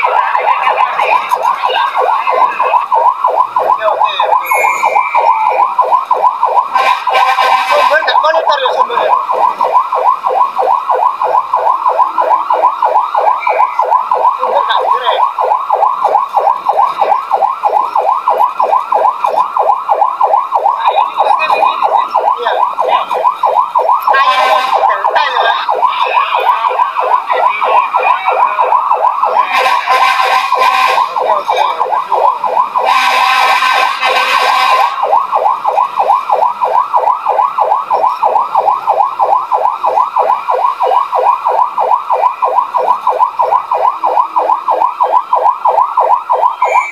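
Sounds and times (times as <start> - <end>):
fire truck siren yelping: 0.0 - 46.9
harsh siren blasts: 0.0 - 46.9.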